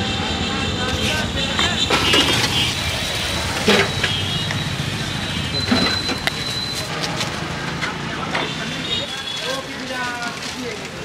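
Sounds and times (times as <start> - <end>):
low traffic hum: 0.0 - 11.0
voices: 0.0 - 11.0.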